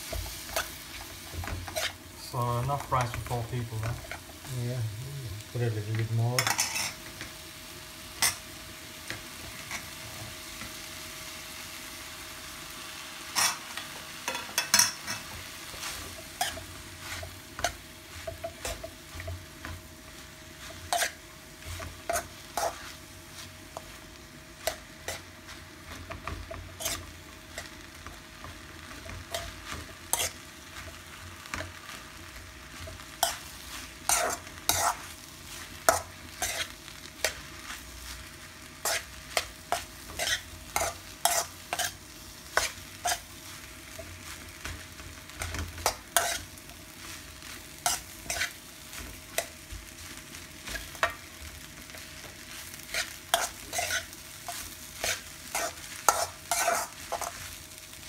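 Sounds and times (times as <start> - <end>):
rice sizzling in a wok: 0.0 - 58.0
metal spoon scraping a pan: 0.2 - 2.0, 6.4 - 7.0, 13.3 - 19.8, 20.6 - 23.9, 24.6 - 25.3, 25.9 - 27.8, 29.0 - 31.7, 32.8 - 37.5, 38.8 - 43.4, 45.4 - 49.6, 52.6 - 57.5.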